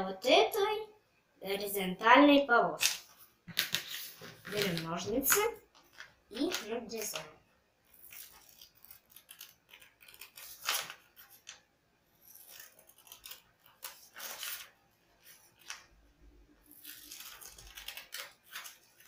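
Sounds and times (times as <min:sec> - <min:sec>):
scissors snipping paper: 0:07.9 - 0:11.6, 0:12.2 - 0:14.7, 0:16.6 - 0:19.0.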